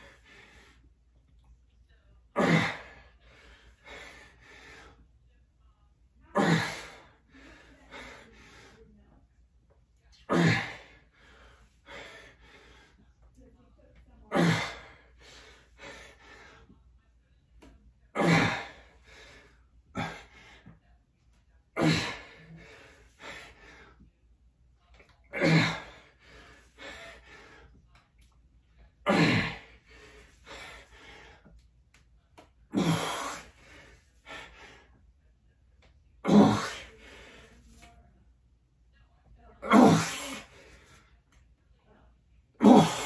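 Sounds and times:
quiet breaths: 0.0 - 39.6
man grunting with effort: 29.1 - 29.6, 39.6 - 40.4, 42.6 - 43.0.

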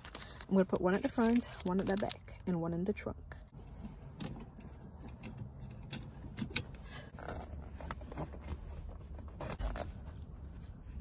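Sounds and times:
jacket sleeve rustling: 6.7 - 11.0.

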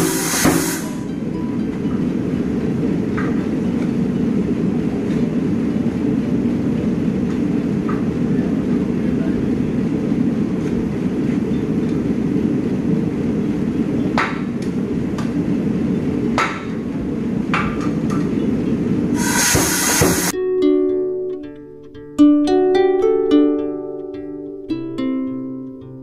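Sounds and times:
hammer striking steel: 0.0 - 1.0, 19.2 - 20.3.

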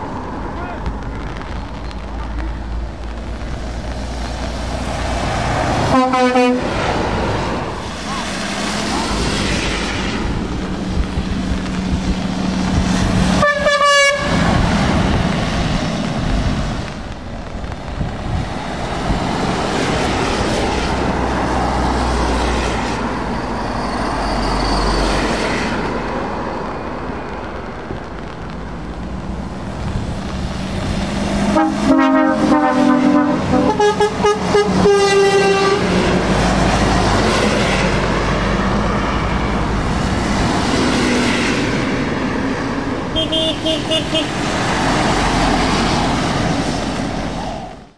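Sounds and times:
tyres hissing on wet road: 0.0 - 47.9
truck horn blasts: 5.9 - 6.7, 13.4 - 14.4, 31.5 - 35.9, 43.1 - 44.4.

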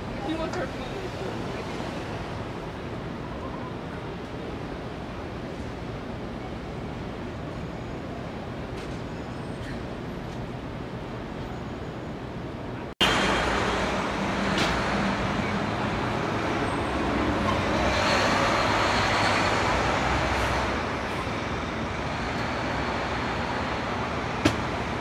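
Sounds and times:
street traffic noise: 0.0 - 25.0.

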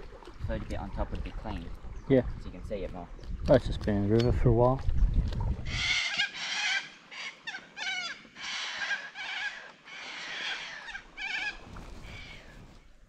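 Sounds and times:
birds squawking: 5.7 - 12.7.

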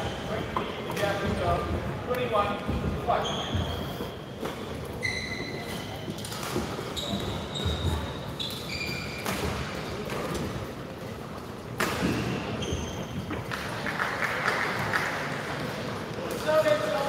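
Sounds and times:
shoe squeaks on court floor: 3.1 - 9.5, 12.2 - 13.4.

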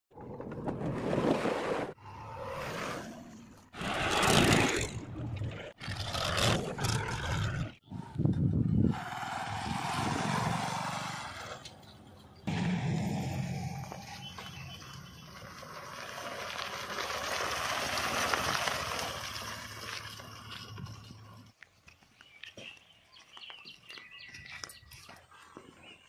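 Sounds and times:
tractor engine: 8.9 - 21.6
motorcycle engine: 9.0 - 21.5.

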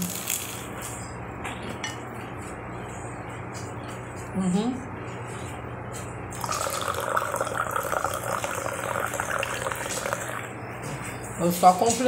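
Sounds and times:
coffee pouring into mug: 6.3 - 10.5.

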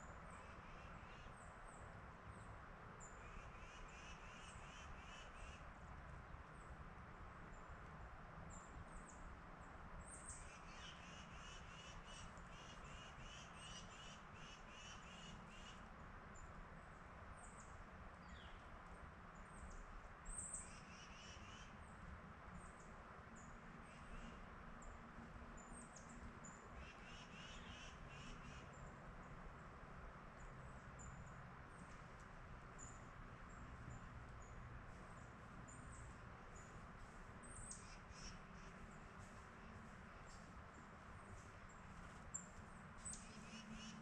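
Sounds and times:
bird calls: 26.8 - 28.7, 37.4 - 39.0, 43.0 - 44.0.

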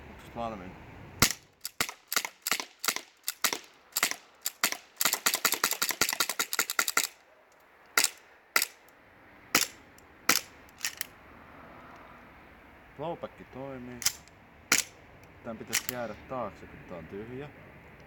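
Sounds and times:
airsoft pistol shots: 1.2 - 7.1, 9.6 - 10.5, 14.0 - 15.0.

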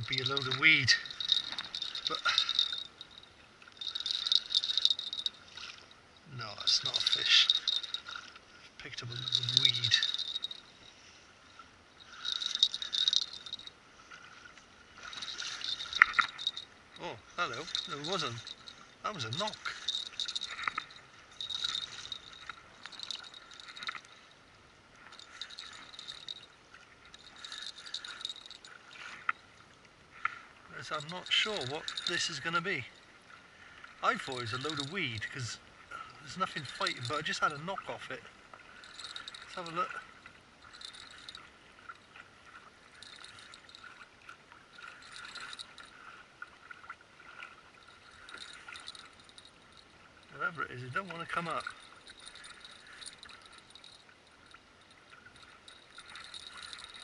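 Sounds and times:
fishing reel whirring: 0.0 - 5.4, 6.6 - 8.3, 9.2 - 10.7, 12.0 - 13.7, 15.0 - 16.7, 17.5 - 24.2, 25.1 - 29.1, 30.9 - 32.6, 34.2 - 35.0, 36.4 - 37.6, 38.8 - 39.8, 40.6 - 41.5, 42.9 - 44.0, 44.7 - 46.0, 47.8 - 50.3, 51.6 - 57.0
light ticking: 0.0 - 5.4, 6.6 - 10.7, 12.1 - 13.7, 15.1 - 24.2, 30.8 - 33.0
water lapping against a hull: 0.0 - 57.0.

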